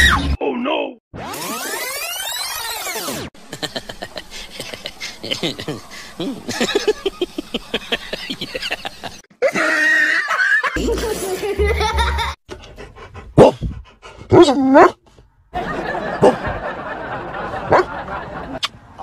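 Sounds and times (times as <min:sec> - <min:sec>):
people laughing: 0:03.4 - 0:12.4, 0:15.6 - 0:18.7
dog barking: 0:13.4 - 0:13.6, 0:14.3 - 0:15.0, 0:16.1 - 0:16.5, 0:17.7 - 0:17.9.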